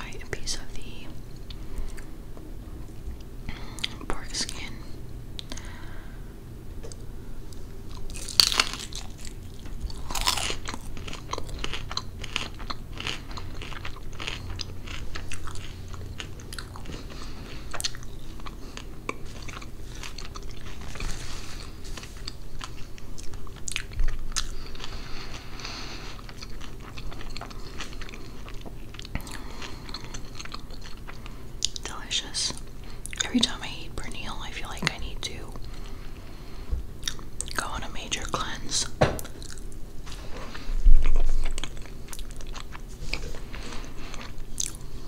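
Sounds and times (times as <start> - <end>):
crunchy chewing: 6.8 - 31.9, 39.2 - 45.0.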